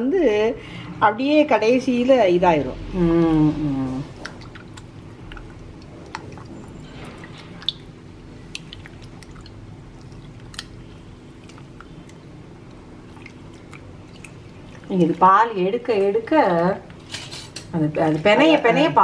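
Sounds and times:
wet dough squelching: 3.2 - 19.0
water dripping: 4.0 - 17.0.

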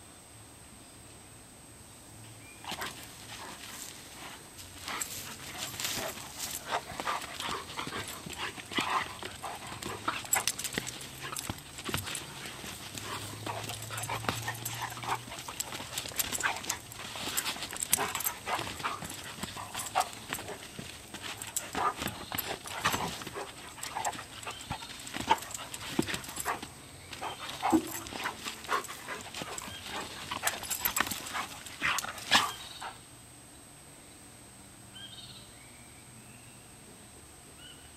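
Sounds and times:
dogs growling and yipping: 2.7 - 33.0
dogs scuffling: 2.7 - 33.0.

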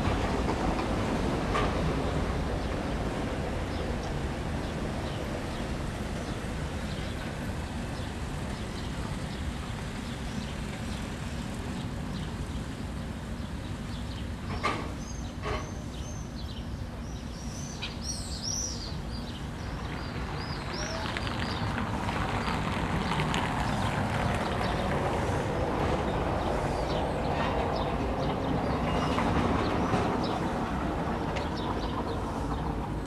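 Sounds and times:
small birds chirping: 15.0 - 21.8.

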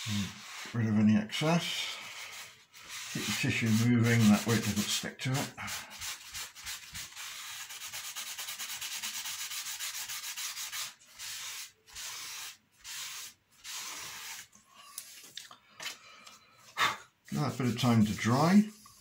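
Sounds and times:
tissue rubbing on wood: 0.0 - 15.3, 17.2 - 19.0.

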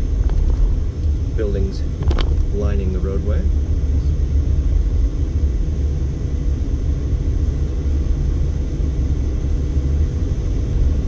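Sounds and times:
tyre and road noise: 0.0 - 5.1
car engine hum: 0.0 - 11.0.

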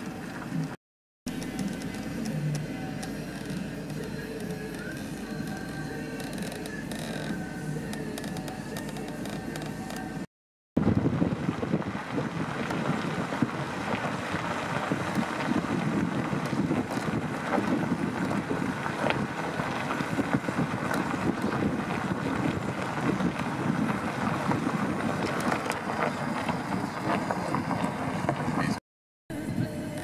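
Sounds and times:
wind buffeting microphone: 10.8 - 30.0.

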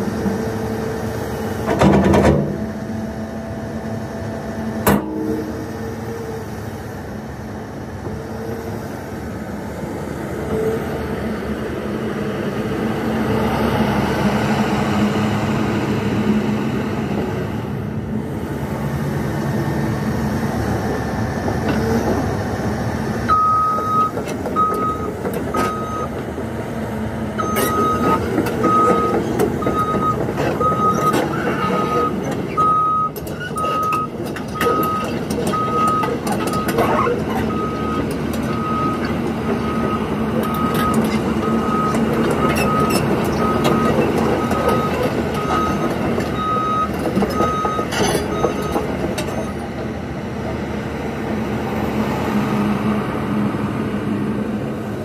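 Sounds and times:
excavator diesel engine running: 0.0 - 55.0
travel alarm beeping: 23.3 - 26.1, 27.4 - 36.7, 39.7 - 48.8.

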